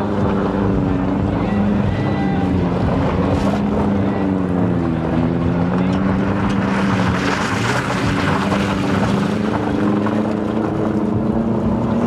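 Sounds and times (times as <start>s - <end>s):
car engine at high revs: 0.0s - 12.0s
tyres spinning on dirt: 2.6s - 12.0s.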